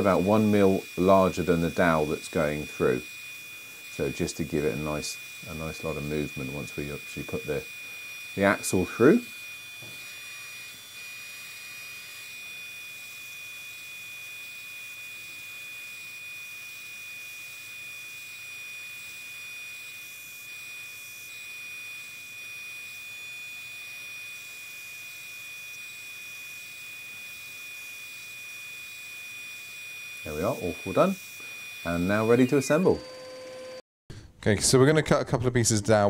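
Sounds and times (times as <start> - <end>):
wood block sanded on belt: 0.0 - 3.2, 3.8 - 15.4, 30.2 - 33.0
belt sander whirring: 0.0 - 33.8.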